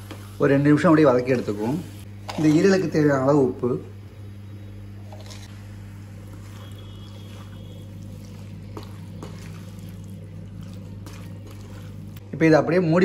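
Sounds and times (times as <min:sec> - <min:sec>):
steady low hum: 0:00.0 - 0:13.0
wooden spatula stirring in pan: 0:05.1 - 0:12.2.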